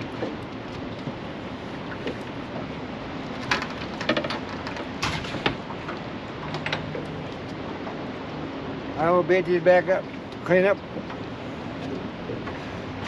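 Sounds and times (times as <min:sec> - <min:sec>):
wind: 0:00.0 - 0:13.0.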